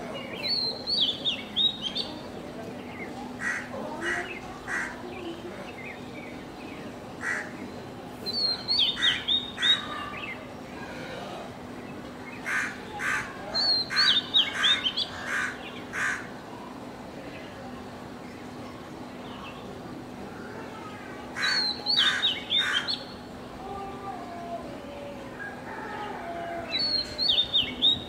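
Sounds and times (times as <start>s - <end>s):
crows cawing: 3.4s - 5.0s, 7.2s - 7.5s, 12.4s - 16.3s, 21.4s - 22.9s.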